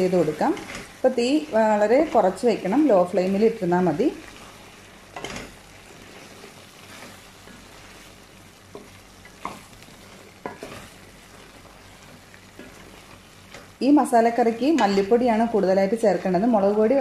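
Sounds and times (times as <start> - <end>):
soft steady sizzle: 0.0 - 17.0
spatula stirring thick curry: 4.2 - 13.7
spatula tapping pan: 8.7 - 13.8.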